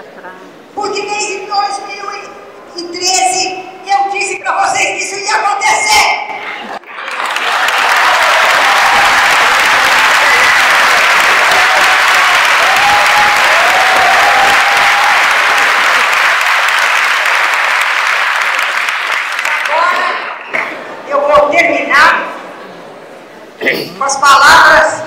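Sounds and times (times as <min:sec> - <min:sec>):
audience applauding: 0:06.8 - 0:20.3.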